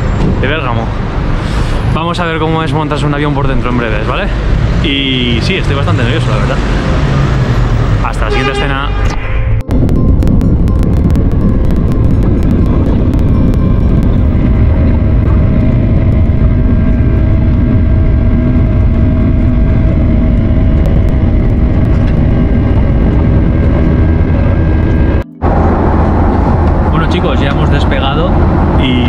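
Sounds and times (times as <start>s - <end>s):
jet engines rumbling: 0.0s - 29.0s.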